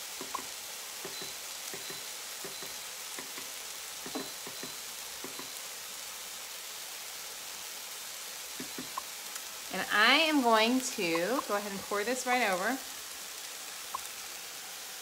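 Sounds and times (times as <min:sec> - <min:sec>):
meat sizzling in a pot: 0:00.0 - 0:15.0
small pops and ticks: 0:00.2 - 0:05.6, 0:08.6 - 0:09.5, 0:11.1 - 0:11.3.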